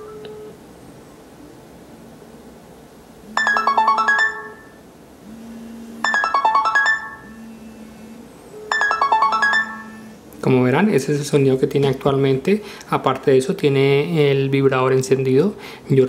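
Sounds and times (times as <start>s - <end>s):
marimba-like phone ringtone: 3.3s - 4.8s, 6.0s - 7.5s, 8.6s - 10.2s
phone vibration buzz: 3.3s - 10.2s.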